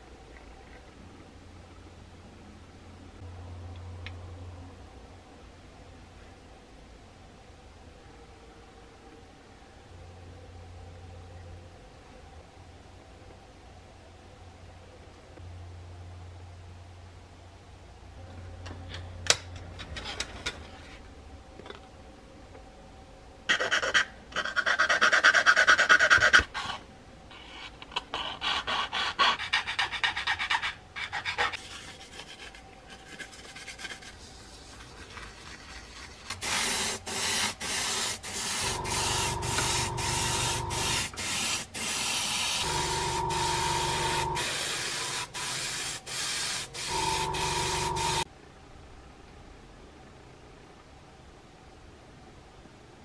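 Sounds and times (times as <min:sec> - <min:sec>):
steady hum: 0:37.9 - 0:50.0.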